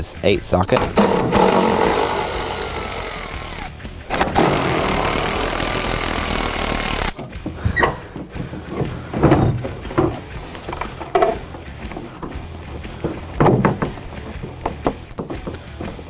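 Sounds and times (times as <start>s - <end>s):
electric ratchet running: 0.7s - 7.4s.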